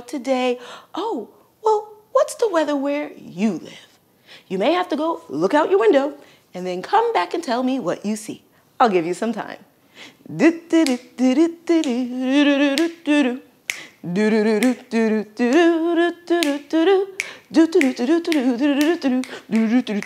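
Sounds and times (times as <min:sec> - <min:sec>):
woman singing wordless tune: 0:00.0 - 0:20.0
finger snapping: 0:10.8 - 0:11.2, 0:12.8 - 0:13.1, 0:13.7 - 0:14.0, 0:14.6 - 0:14.9, 0:16.4 - 0:20.0.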